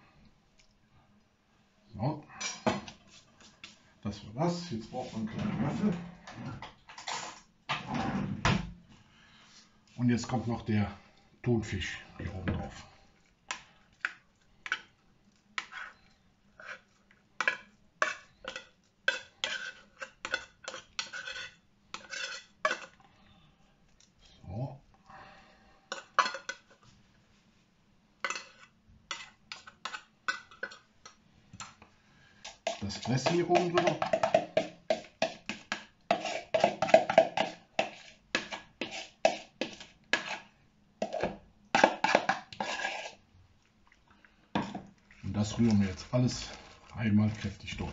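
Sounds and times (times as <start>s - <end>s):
metal spoon scraping tin can: 17.4s - 22.9s, 32.5s - 43.2s.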